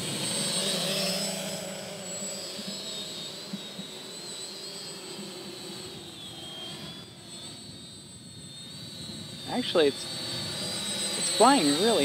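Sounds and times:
distant drone motors whining: 0:00.0 - 0:12.0.

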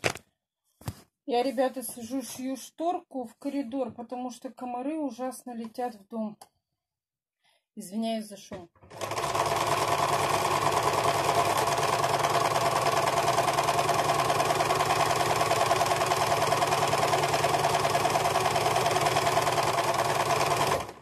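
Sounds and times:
sewing machine stitching: 0:08.9 - 0:21.0.

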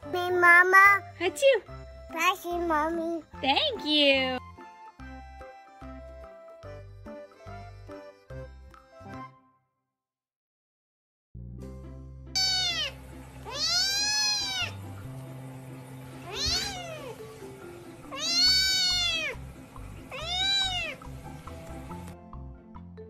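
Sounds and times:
background music: 0:00.0 - 0:09.6, 0:11.4 - 0:23.0
cat meowing: 0:12.4 - 0:14.9, 0:16.2 - 0:17.4, 0:18.0 - 0:19.4, 0:20.0 - 0:21.1.

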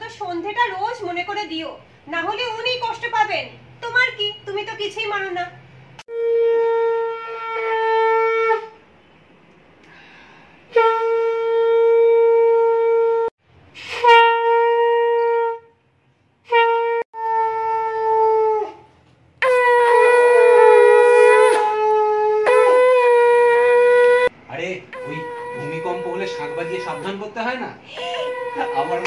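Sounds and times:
conch shell blasts: 0:13.8 - 0:15.6, 0:19.4 - 0:24.3, 0:24.9 - 0:27.2.

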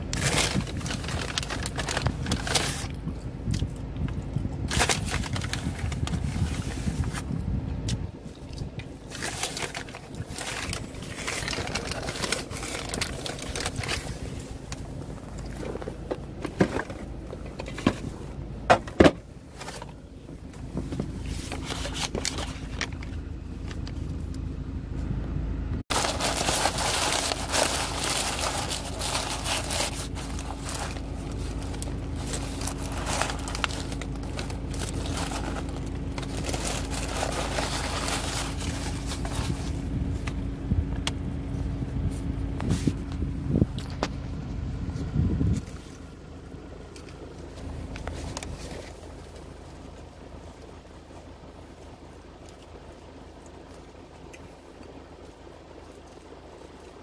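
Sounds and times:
paper bag rustling and crinkling: 0:00.0 - 0:03.2, 0:04.6 - 0:07.4, 0:08.3 - 0:24.1, 0:25.8 - 0:40.6, 0:47.3 - 0:51.2
car hum: 0:00.0 - 0:57.0.

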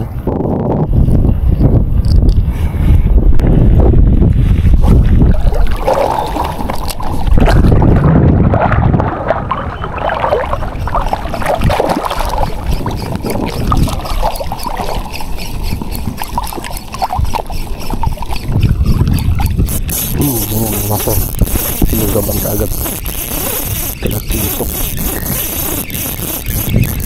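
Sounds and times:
wind buffeting microphone: 0:00.0 - 0:27.0
sea water sloshing: 0:04.3 - 0:20.2.

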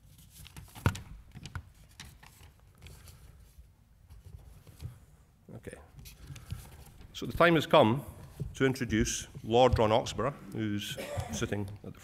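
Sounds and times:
paper rustling: 0:00.0 - 0:05.0.

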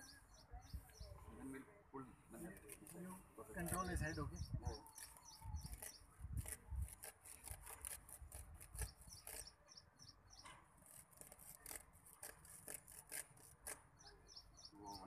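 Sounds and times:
small bird chirping: 0:00.0 - 0:01.5, 0:03.6 - 0:07.1, 0:07.8 - 0:11.8, 0:12.9 - 0:15.0.

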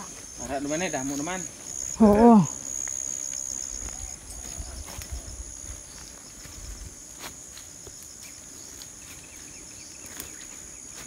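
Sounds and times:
crickets trilling: 0:00.0 - 0:11.0
rustling through crop plants: 0:02.7 - 0:11.0.

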